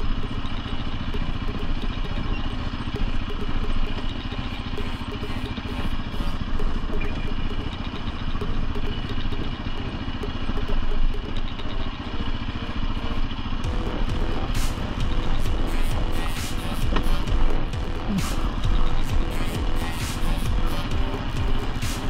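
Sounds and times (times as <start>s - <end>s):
small clicks and rattles: 0.0s - 13.7s
quad engine running: 0.0s - 22.0s.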